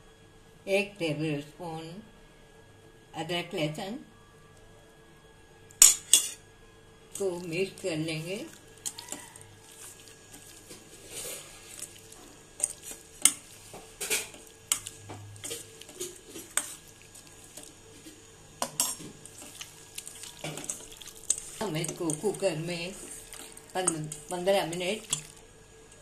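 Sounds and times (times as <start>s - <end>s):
meat clinking in steel bowl: 8.8s - 10.2s, 18.6s - 25.4s.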